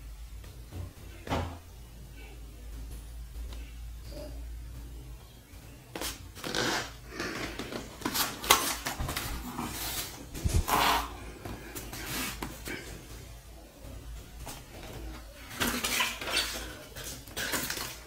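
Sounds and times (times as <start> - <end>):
cardboard scraping and rubbing: 6.0 - 11.2.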